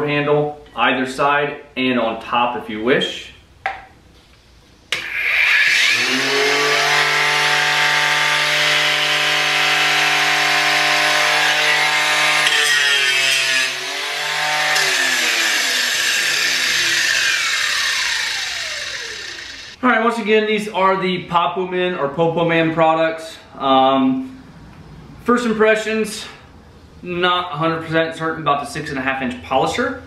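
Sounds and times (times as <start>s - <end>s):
angle grinder running: 5.0s - 19.8s.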